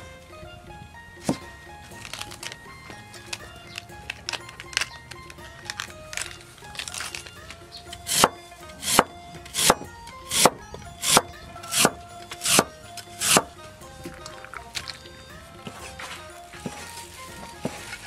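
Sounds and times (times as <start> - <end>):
soft background music: 0.0 - 18.0
cleaver chopping on wooden board: 7.9 - 13.6.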